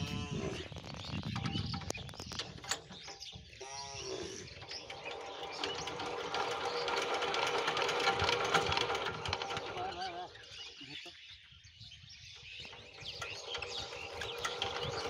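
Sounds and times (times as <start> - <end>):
diesel engine clattering: 4.4 - 10.8, 12.4 - 15.0.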